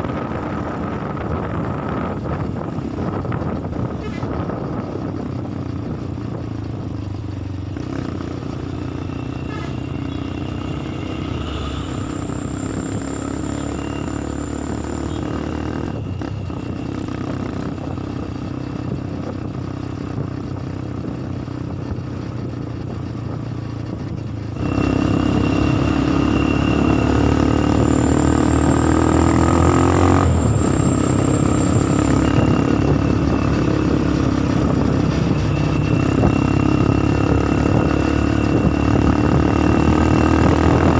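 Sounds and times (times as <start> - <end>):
bus engine running: 0.0 - 40.9
road and wind noise: 0.0 - 40.9.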